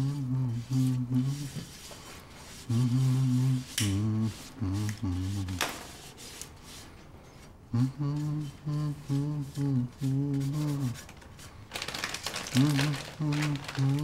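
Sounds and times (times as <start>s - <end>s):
man humming: 0.0s - 1.7s, 2.6s - 5.6s, 7.7s - 11.0s, 12.5s - 14.0s.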